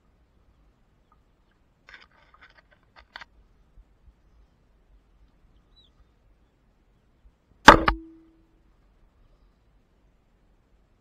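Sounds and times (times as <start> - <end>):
loud bang: 7.7 - 8.3.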